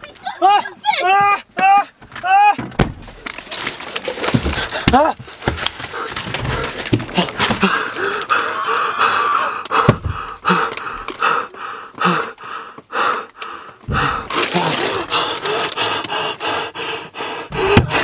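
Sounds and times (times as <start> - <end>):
person panting and gasping: 4.0 - 18.0.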